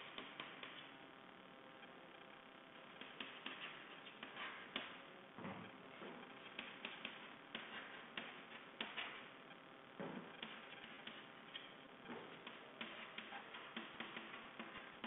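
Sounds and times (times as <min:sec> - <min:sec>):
chalk writing on chalkboard: 0:03.0 - 0:04.9, 0:06.4 - 0:09.3, 0:10.4 - 0:15.0.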